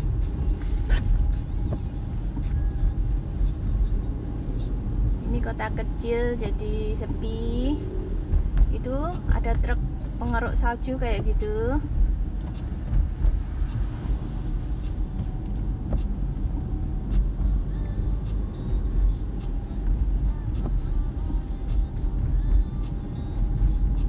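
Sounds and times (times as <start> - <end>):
tyres and engine rumble: 0.0 - 24.0
faint ticks: 19.0 - 23.0.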